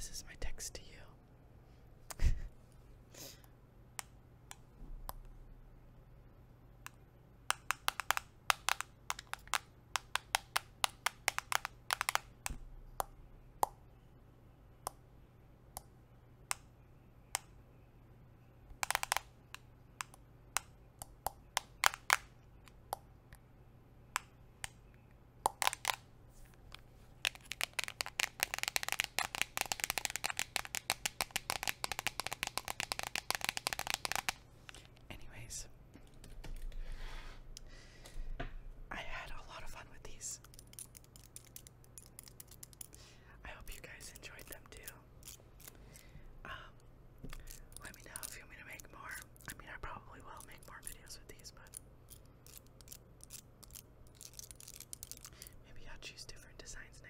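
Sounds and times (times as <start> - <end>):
nail tips tapping on smartphone: 7.5 - 13.8, 25.5 - 26.0, 27.2 - 34.4.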